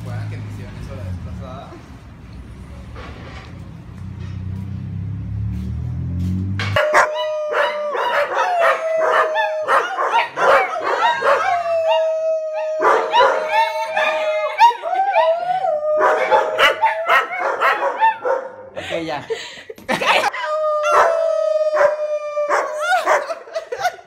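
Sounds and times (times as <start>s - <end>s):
dog yipping and barking: 6.8s - 11.7s, 12.8s - 14.8s, 16.0s - 18.6s
dog howling: 6.8s - 18.4s, 20.3s - 23.4s.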